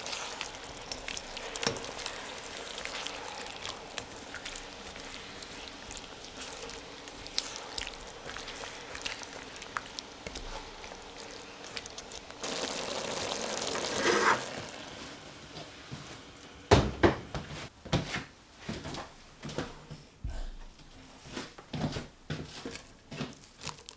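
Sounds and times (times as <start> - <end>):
food hissing in wok: 0.0 - 15.4.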